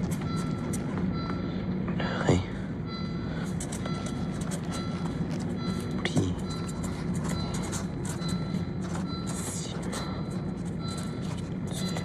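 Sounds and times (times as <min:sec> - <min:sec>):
car interior drone: 0:00.0 - 0:12.0
pen scratching on paper: 0:03.6 - 0:05.9, 0:06.5 - 0:12.0.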